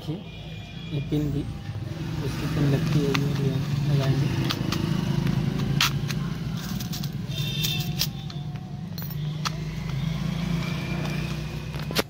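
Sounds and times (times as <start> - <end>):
metal terminals clicking in plastic box: 4.3 - 10.0.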